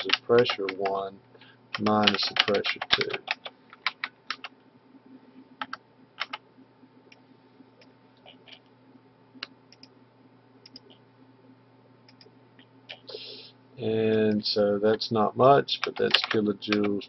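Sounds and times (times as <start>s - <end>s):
faint electrical hum: 0.0s - 17.0s
keyboard and mouse clicks: 1.8s - 4.5s, 5.6s - 6.4s, 10.6s - 11.0s.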